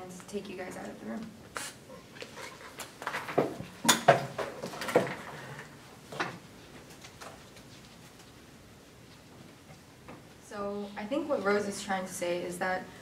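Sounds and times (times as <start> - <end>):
chairs knocking and scraping: 2.7 - 7.4.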